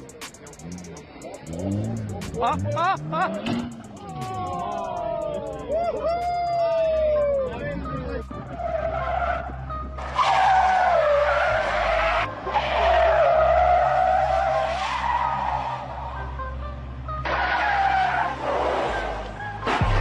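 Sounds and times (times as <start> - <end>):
tyres squealing on pavement: 7.3 - 16.3, 17.2 - 19.9.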